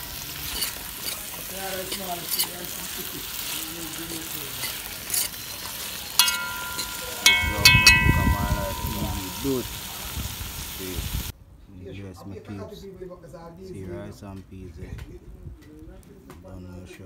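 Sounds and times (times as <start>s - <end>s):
vegetables sizzling in oil: 0.0s - 11.3s
fork scraping metal pot: 0.4s - 3.0s, 4.5s - 7.0s
fork knocking ringing pot: 6.2s - 10.0s.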